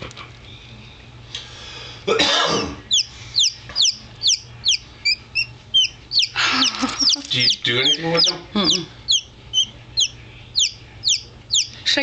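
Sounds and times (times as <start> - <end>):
chick peeping: 2.9 - 11.9.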